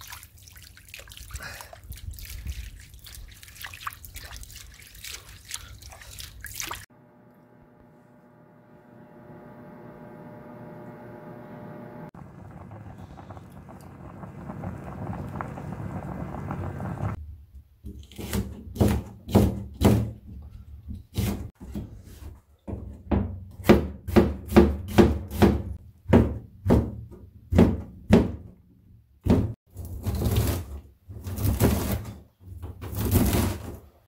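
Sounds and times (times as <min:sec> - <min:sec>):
pot boiling with bubbling hiss: 0:12.1 - 0:17.2.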